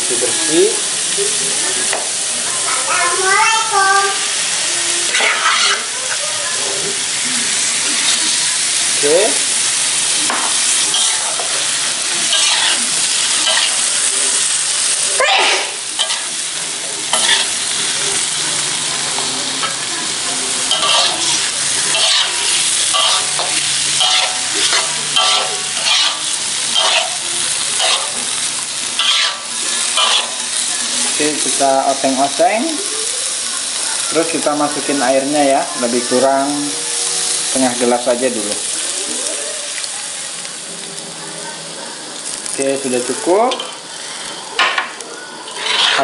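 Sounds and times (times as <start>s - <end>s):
food sizzling in oil: 0.0s - 46.0s
metal spatula scraping wok: 5.0s - 6.2s, 10.0s - 19.8s, 20.6s - 32.2s, 45.4s - 46.0s.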